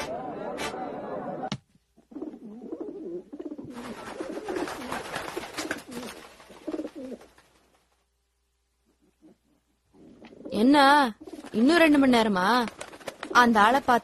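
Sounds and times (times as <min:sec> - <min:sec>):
pigeons cooing: 0:02.1 - 0:07.3.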